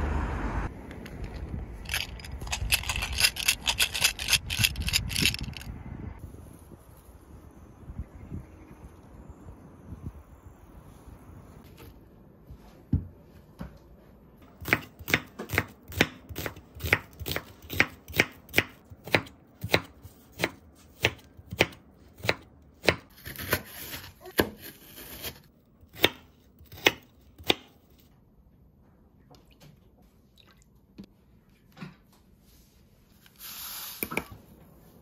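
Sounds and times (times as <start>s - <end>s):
knife chopping on wooden board: 14.6s - 23.6s.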